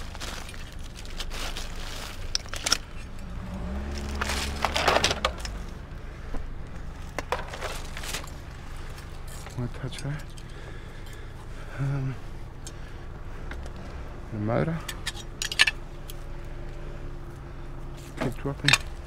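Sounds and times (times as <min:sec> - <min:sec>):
vehicle engine hum passing: 0:00.0 - 0:19.0
computer parts clattering: 0:04.0 - 0:05.7, 0:07.1 - 0:08.5, 0:18.2 - 0:19.0.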